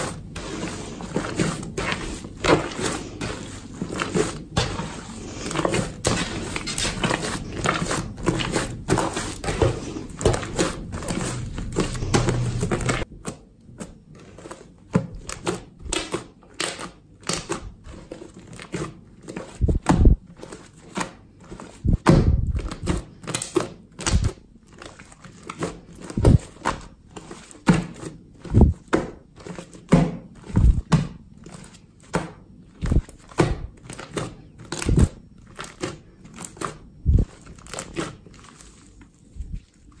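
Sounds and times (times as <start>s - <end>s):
slime squelching: 0.0s - 13.1s.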